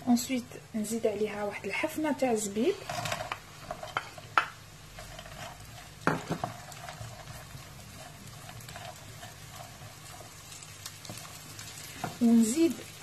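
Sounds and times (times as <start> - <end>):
onions sizzling in butter: 0.0 - 13.0
wooden spatula knocking pan: 3.1 - 7.6, 12.0 - 12.3.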